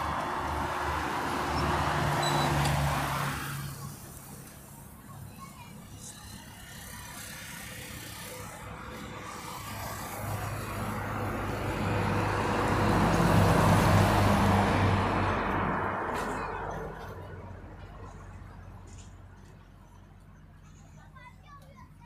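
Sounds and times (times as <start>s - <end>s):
vehicle passing by: 0.0s - 4.6s, 6.8s - 19.2s.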